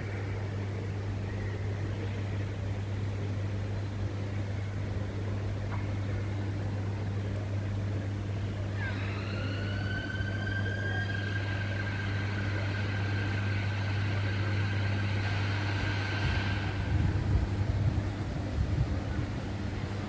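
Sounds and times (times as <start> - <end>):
high whine: 0.0 - 20.0
low mechanical hum: 0.0 - 20.0.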